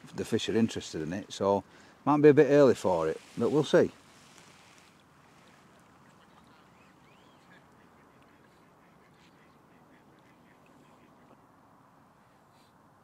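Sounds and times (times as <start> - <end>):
faint bird calls: 5.5 - 12.8.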